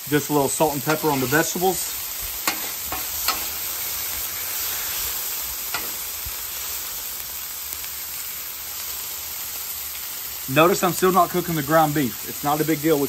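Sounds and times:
food sizzling on a griddle: 0:00.0 - 0:13.0
metal spatula scraping steel: 0:02.4 - 0:03.7, 0:05.7 - 0:06.1.

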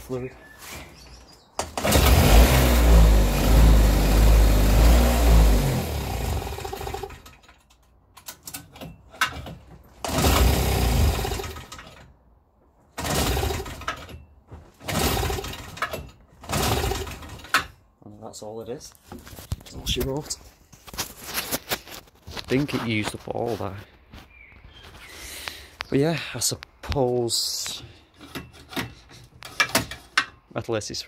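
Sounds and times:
small two-stroke engine running: 0:01.8 - 0:07.2.

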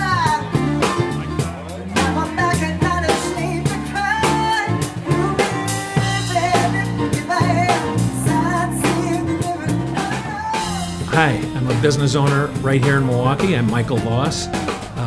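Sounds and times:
woman singing: 0:00.0 - 0:01.0, 0:01.9 - 0:11.1
drum kit steady beat: 0:00.0 - 0:15.0
live band playing: 0:00.0 - 0:15.0.

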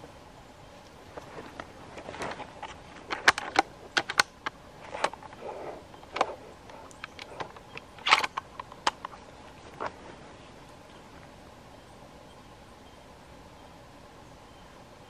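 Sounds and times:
soft rustle: 0:00.0 - 0:12.6
dry sticks snapping and crackling: 0:00.8 - 0:10.0.

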